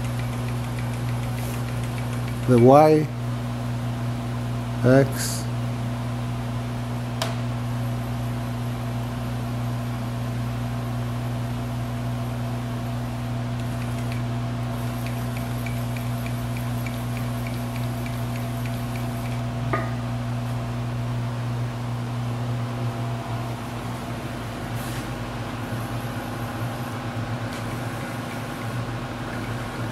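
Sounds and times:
mill motors humming: 0.0s - 3.1s, 13.6s - 19.6s, 22.8s - 29.9s.

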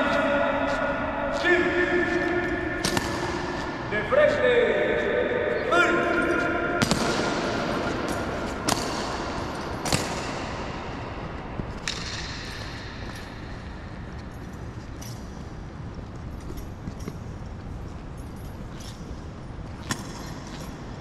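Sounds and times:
sharp knocks echoing in hall: 0.0s - 15.7s.

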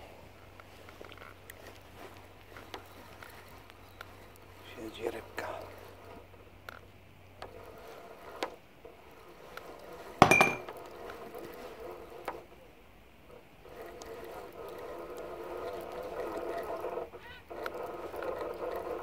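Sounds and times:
faint clicks: 0.6s - 4.6s
sharp clink with ringing tone: 10.2s - 10.6s.

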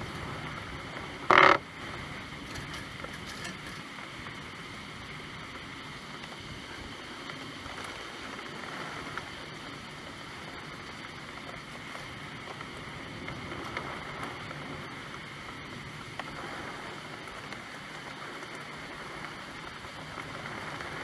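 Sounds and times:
steady rain hiss: 0.0s - 21.0s
faint raindrop ticks: 2.3s - 21.0s.

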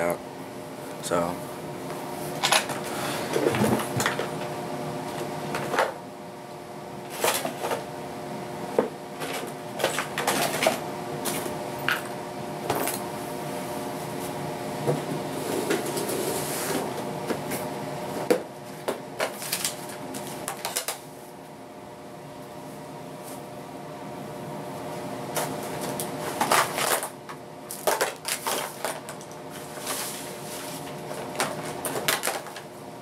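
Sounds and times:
steady hum: 0.0s - 33.0s
objects knocking and clattering: 2.4s - 4.3s.

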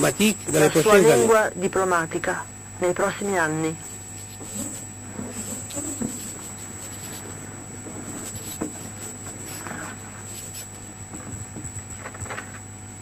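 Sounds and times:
low electrical hum: 0.0s - 13.0s
thin high whine: 0.0s - 13.0s
paper rustling: 3.9s - 12.7s.

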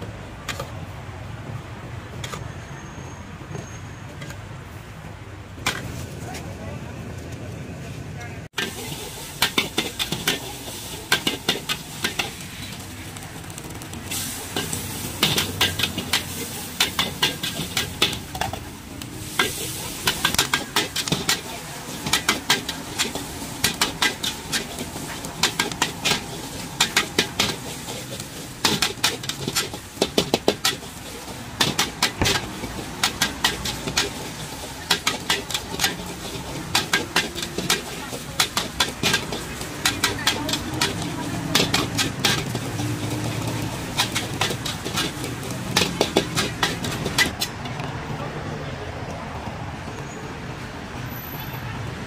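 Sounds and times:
food sizzling: 8.6s - 47.5s
spatula scraping a wok: 8.6s - 47.5s.

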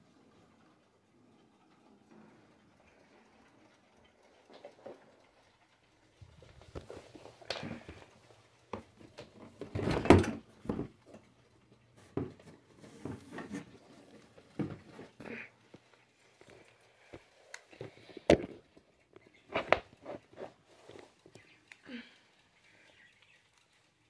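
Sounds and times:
knocks and clunks: 8.7s - 11.0s.

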